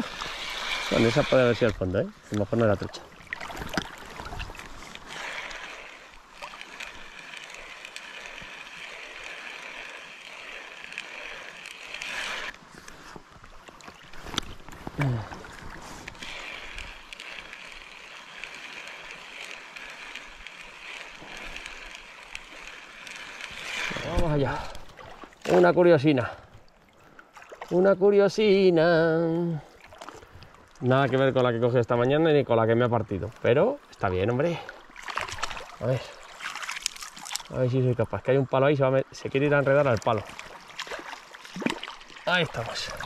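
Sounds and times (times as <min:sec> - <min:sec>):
river water rushing: 0:00.0 - 0:12.7, 0:40.2 - 0:43.0.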